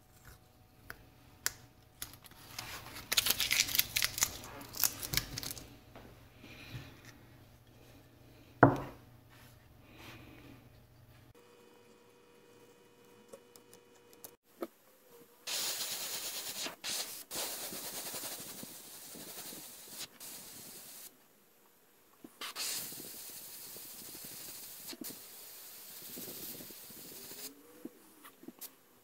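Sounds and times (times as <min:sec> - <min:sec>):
airbrush hissing: 0:15.5 - 0:21.1, 0:22.4 - 0:27.6.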